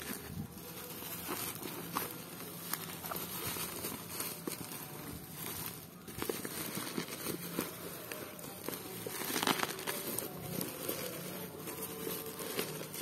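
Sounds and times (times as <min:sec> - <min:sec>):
packaging rustling and crinkling: 0:00.0 - 0:13.0.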